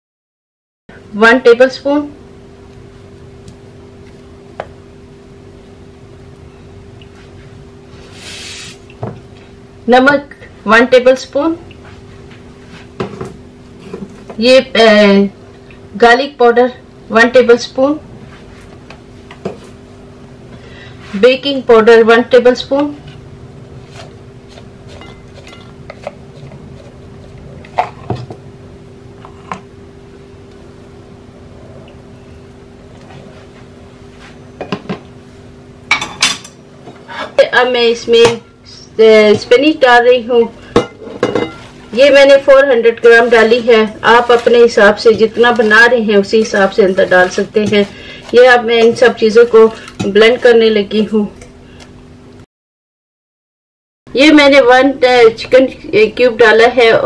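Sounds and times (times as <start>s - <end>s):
steady low hum: 0.9s - 52.4s
short rustling hiss: 8.0s - 8.8s.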